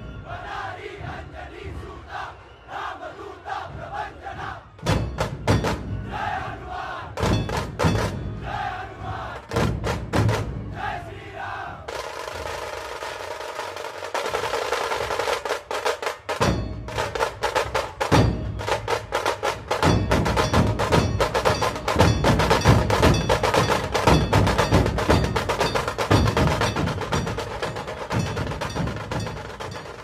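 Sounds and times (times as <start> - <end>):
rapid tasha drum strikes: 3.5 - 30.0
deep barrel drum beats: 3.6 - 6.4, 7.1 - 11.0, 11.7 - 30.0.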